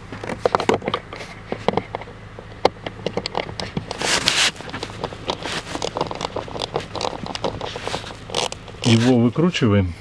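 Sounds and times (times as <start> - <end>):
metal scraping on plastic: 0.1 - 9.3
screwdriver turning screw in plastic: 4.2 - 9.1.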